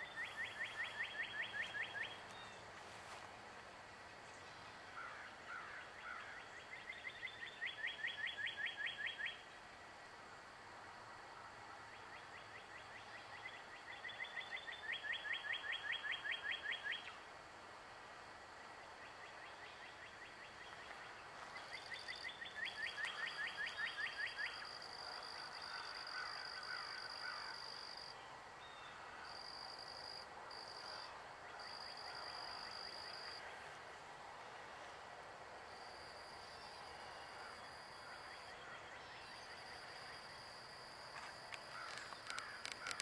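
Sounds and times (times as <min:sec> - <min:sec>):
songbird whistling: 0:00.0 - 0:02.5
outdoor background hiss: 0:00.0 - 0:43.0.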